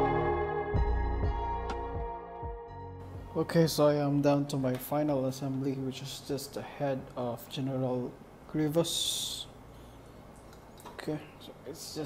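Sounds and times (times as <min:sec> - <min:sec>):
ambient keyboard notes: 0:00.0 - 0:03.6
low beat: 0:00.0 - 0:03.6.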